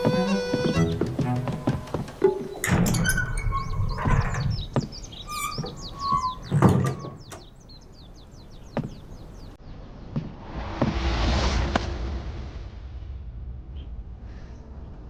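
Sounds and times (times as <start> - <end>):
small birds chirping: 0.0 - 10.2.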